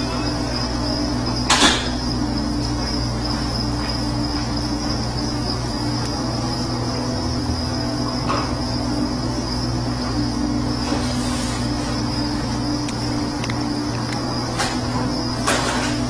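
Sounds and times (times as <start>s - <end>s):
background hum: 0.0s - 16.0s
high-pitched whine: 0.0s - 16.0s.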